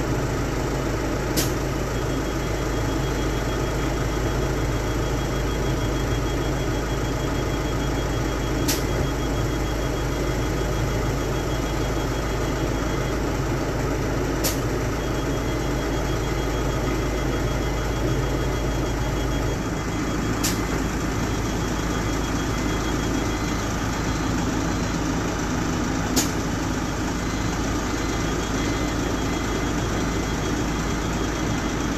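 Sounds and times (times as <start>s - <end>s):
bus diesel engine idling: 0.0s - 31.9s
pneumatic door click: 1.4s - 1.6s, 8.6s - 8.9s, 14.4s - 14.7s, 20.4s - 20.6s, 26.2s - 26.4s.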